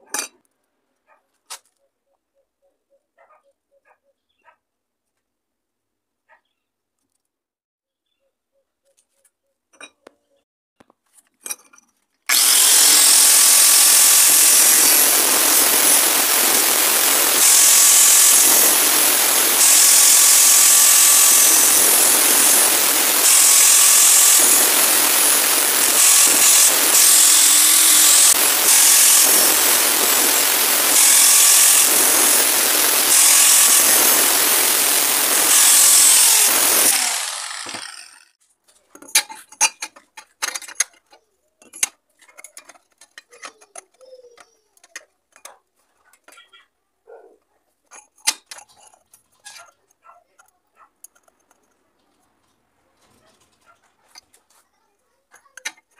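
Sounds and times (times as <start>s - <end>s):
angle grinder cutting metal: 12.3s - 38.4s.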